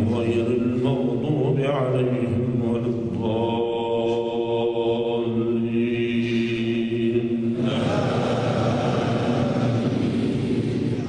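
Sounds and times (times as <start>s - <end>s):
noisier sound: 2.4s - 11.0s.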